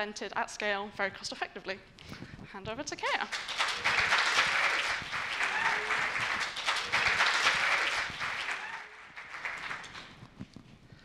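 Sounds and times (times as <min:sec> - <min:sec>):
audience applauding: 0:03.3 - 0:10.3.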